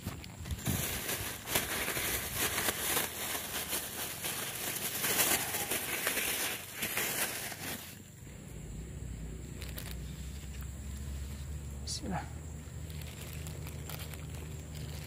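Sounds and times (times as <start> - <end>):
plastic bag crinkling: 0.0 - 8.1, 9.6 - 10.6, 12.7 - 15.0.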